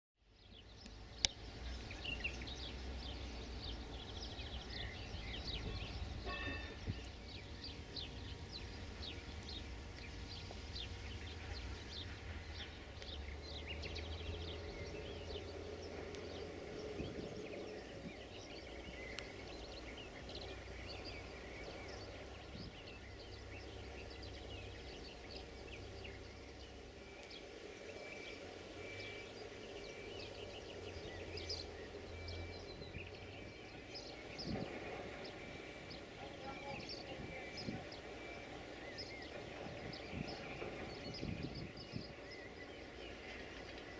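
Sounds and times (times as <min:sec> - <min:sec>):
small birds chirping: 0:00.2 - 0:43.9
low steady rumble: 0:00.3 - 0:43.9.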